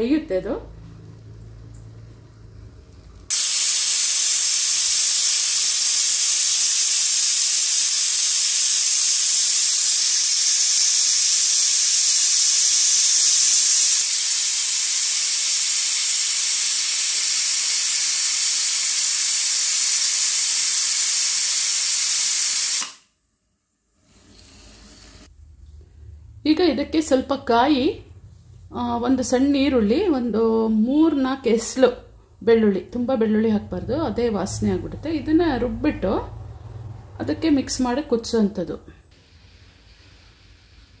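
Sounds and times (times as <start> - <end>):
pressure cooker hissing steam: 3.3 - 23.0, 39.1 - 41.0.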